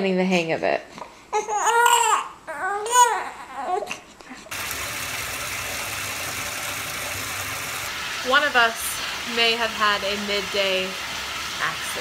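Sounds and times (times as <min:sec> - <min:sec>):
infant crying: 0:01.3 - 0:04.0
running bathwater: 0:04.5 - 0:12.0.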